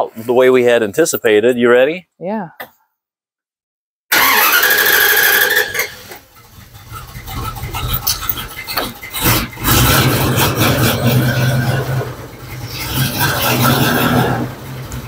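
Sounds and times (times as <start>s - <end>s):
engine running with low hum: 5.4s - 15.0s.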